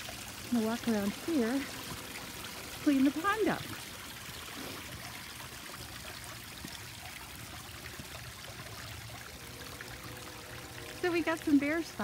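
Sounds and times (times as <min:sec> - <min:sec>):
water running over rocks: 0:00.0 - 0:12.0.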